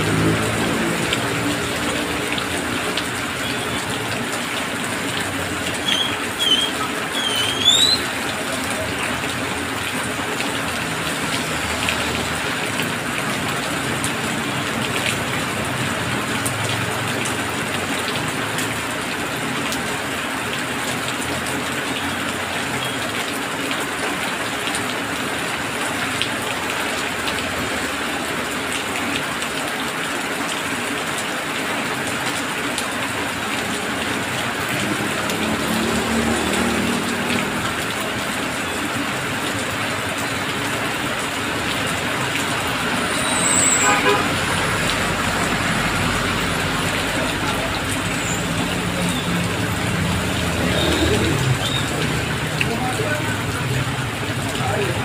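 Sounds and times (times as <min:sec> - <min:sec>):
heavy rain on asphalt and car: 0:00.0 - 0:55.0
tyres hissing on wet road: 0:00.0 - 0:55.0
high chirps: 0:05.9 - 0:08.1.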